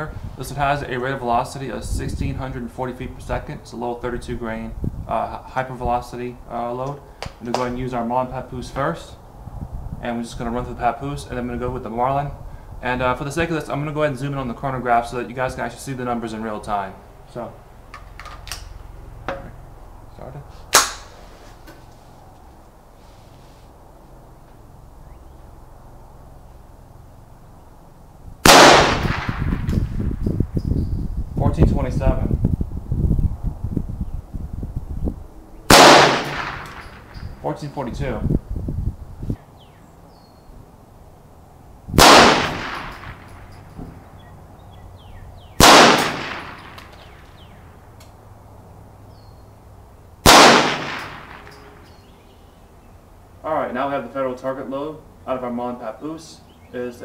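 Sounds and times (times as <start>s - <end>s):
rifle shot crack: 20.7s - 21.1s, 28.4s - 30.2s, 35.7s - 37.4s, 42.0s - 43.6s, 45.6s - 47.4s, 50.2s - 51.9s.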